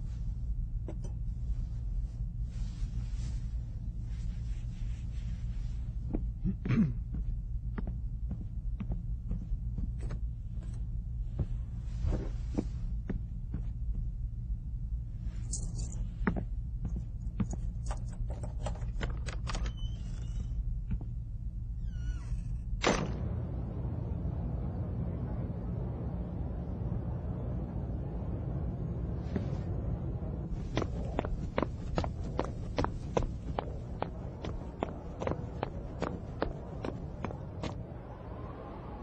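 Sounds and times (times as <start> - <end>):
low hum: 0.0 - 39.0.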